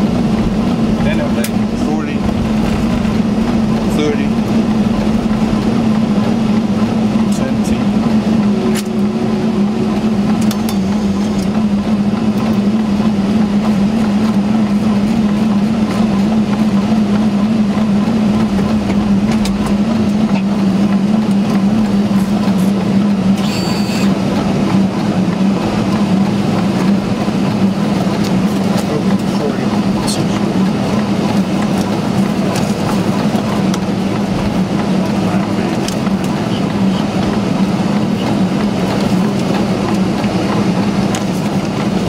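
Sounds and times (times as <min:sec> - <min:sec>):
rushing air: 0:00.0 - 0:13.5
low hum: 0:00.0 - 0:42.0
short high-pitched burst: 0:23.4 - 0:24.1.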